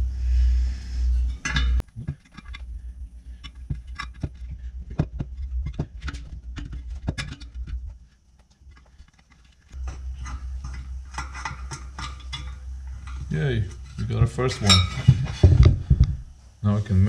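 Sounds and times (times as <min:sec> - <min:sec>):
low steady hum: 0:00.0 - 0:17.0
metallic clicks of wire spokes: 0:03.3 - 0:15.0.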